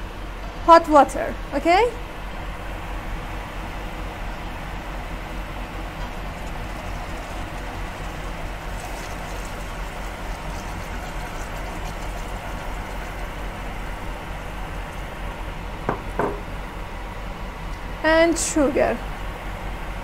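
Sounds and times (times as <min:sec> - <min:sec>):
food sizzling in oil: 0:06.0 - 0:15.3
water being poured: 0:06.3 - 0:15.0.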